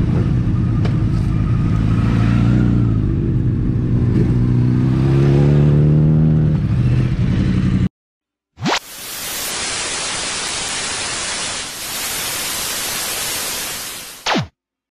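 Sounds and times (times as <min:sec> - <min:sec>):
falling electronic sweep: 0:08.6 - 0:14.5
television static hiss: 0:09.0 - 0:14.3.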